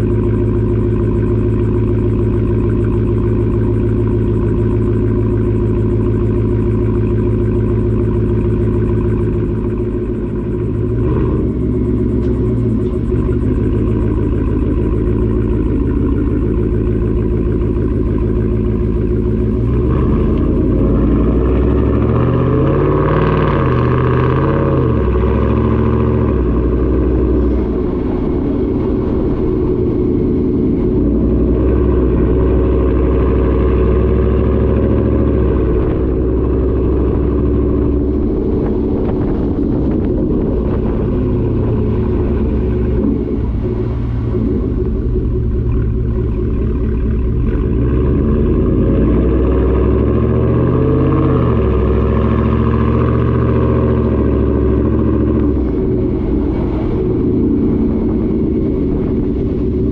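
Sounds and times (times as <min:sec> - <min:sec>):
deep truck exhaust note: 0:00.0 - 0:59.9.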